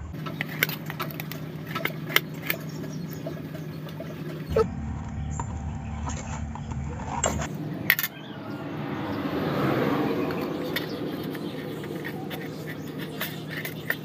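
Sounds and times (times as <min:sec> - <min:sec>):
broad rushing noise: 0:04.5 - 0:14.0
spoon scraping metal plate: 0:10.3 - 0:14.0.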